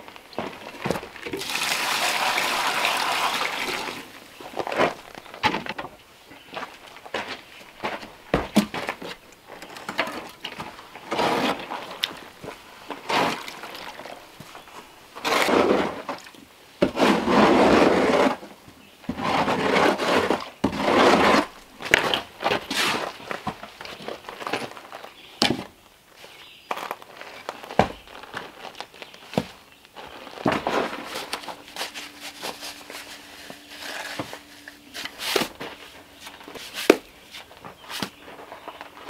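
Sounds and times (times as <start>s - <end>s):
shovel scraping wet mortar: 11.0s - 12.3s, 13.0s - 14.2s, 15.2s - 18.4s, 19.1s - 23.2s, 30.3s - 38.1s.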